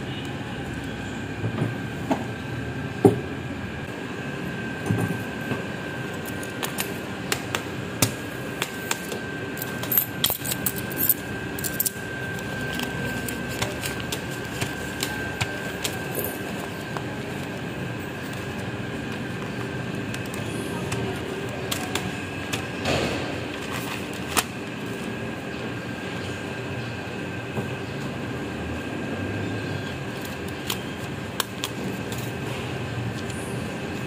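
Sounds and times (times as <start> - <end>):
room hum: 0.0 - 34.0
high-pitched whine: 7.8 - 34.0
paper and banknotes rustling: 11.7 - 22.7, 23.4 - 25.1.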